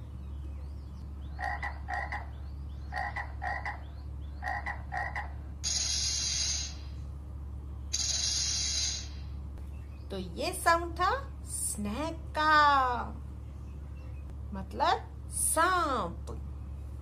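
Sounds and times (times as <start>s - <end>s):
frog croaking: 1.4s - 5.4s.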